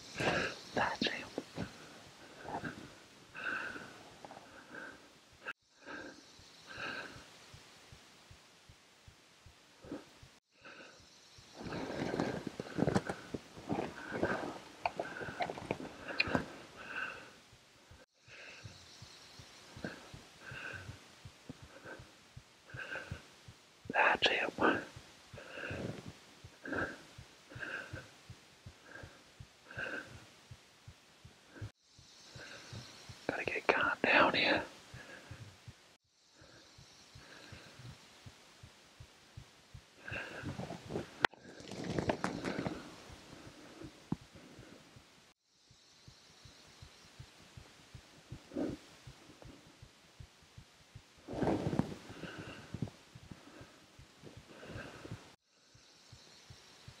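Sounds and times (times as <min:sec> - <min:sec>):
person breathing: 0:00.0 - 0:07.5, 0:09.8 - 0:30.6, 0:31.4 - 0:35.7, 0:36.3 - 0:38.4, 0:40.0 - 0:45.1, 0:48.3 - 0:49.8, 0:51.2 - 0:55.4.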